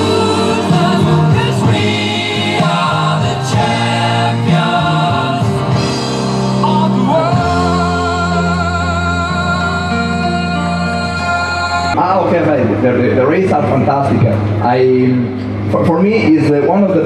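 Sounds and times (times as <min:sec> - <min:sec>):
music with singing voices: 0:00.0 - 0:13.1.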